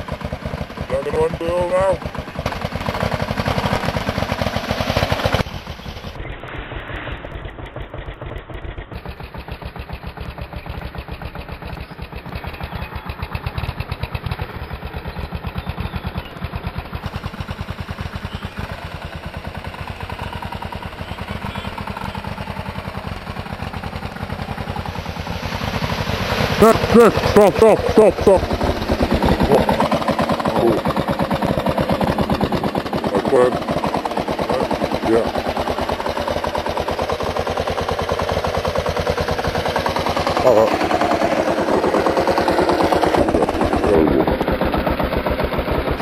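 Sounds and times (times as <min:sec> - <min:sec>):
motorcycle engine thumping: 0:07.2 - 0:19.7.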